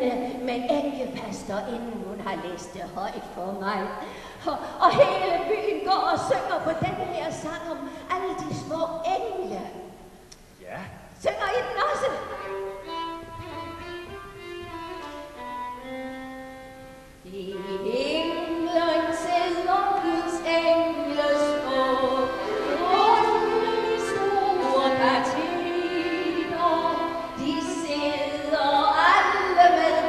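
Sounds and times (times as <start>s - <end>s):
woman singing: 0.0s - 9.7s, 17.2s - 30.0s
violin playing: 11.9s - 30.0s.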